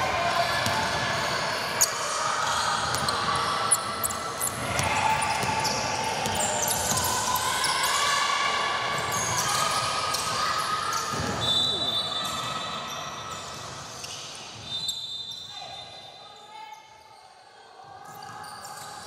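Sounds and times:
shoe squeaks on court: 0:11.0 - 0:16.0.

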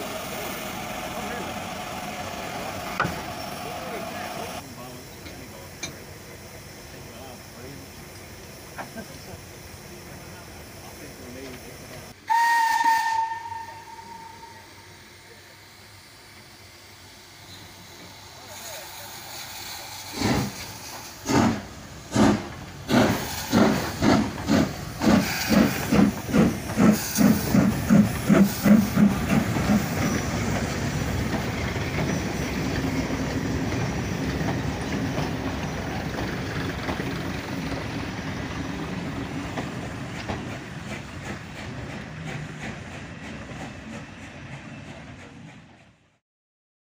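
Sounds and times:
steam locomotive exhaust chuffs: 0:00.0 - 0:46.2
train wheel clatter: 0:18.0 - 0:46.1.

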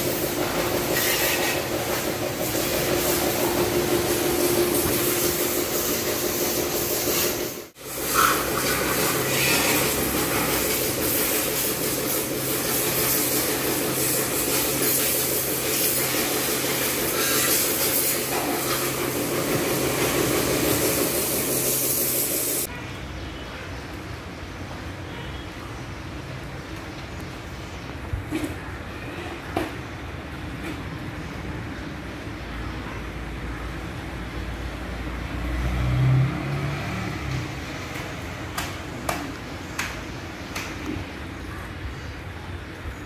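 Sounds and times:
washer pump motor humming: 0:00.0 - 0:21.9
pressure washer jet hissing: 0:00.0 - 0:22.7.

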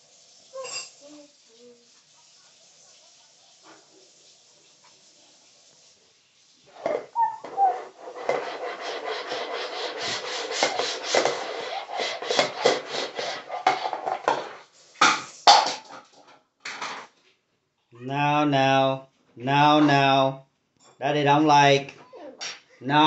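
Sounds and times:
plastic bowl scraping on a tray: 0:06.7 - 0:16.0.

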